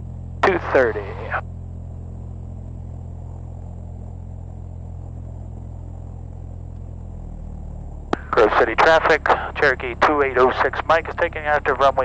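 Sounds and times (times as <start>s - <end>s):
aircraft engine humming: 0.0s - 12.0s.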